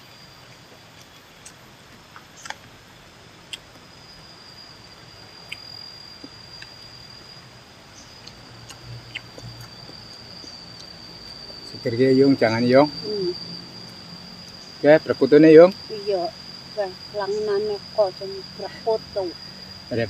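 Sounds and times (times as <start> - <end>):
insect trilling: 0.0 - 20.0
small sharp eating clicks: 8.2 - 10.0.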